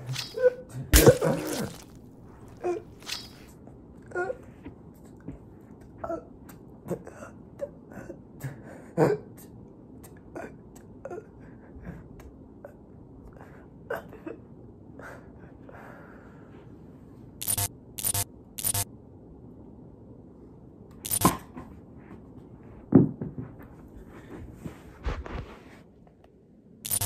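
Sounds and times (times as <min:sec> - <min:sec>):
digital glitch noise bursts: 0:17.4 - 0:18.8.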